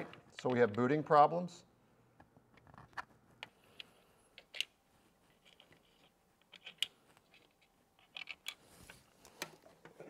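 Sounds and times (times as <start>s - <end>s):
small clicks handling computer parts: 2.5s - 10.0s.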